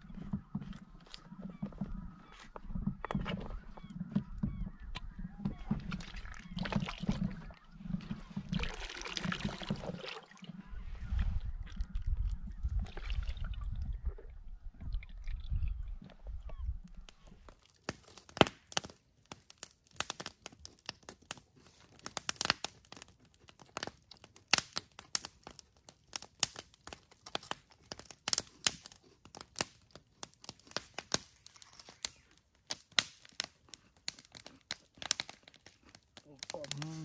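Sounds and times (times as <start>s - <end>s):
burning wood popping: 0.0s - 10.4s, 16.5s - 37.0s
campfire crackling: 16.8s - 37.0s.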